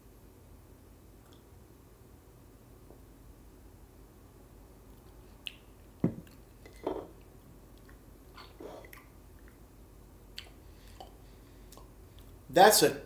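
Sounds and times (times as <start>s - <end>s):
wet lip-smacks and mouth clicks: 5.0s - 6.8s, 7.7s - 9.6s, 10.3s - 12.4s.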